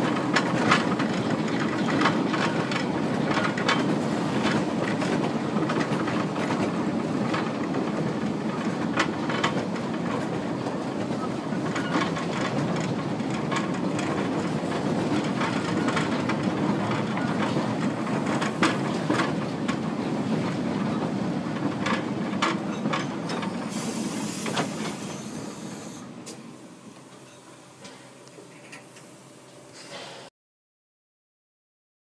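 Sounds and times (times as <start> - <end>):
wheels clicking over rail joints: 0.0 - 26.4
train coaches rumbling on track: 0.0 - 30.3
steam hissing: 23.6 - 26.8.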